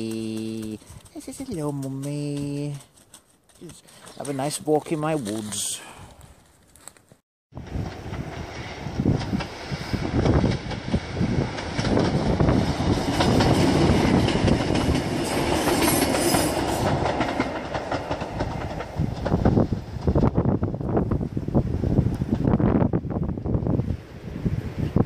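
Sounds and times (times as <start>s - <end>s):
diesel train passing: 7.6s - 25.0s.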